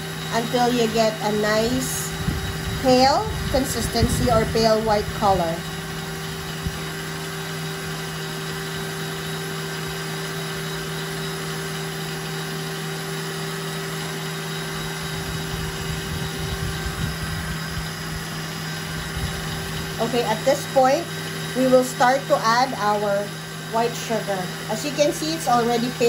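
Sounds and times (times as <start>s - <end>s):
stand mixer whisking: 0.0s - 26.0s.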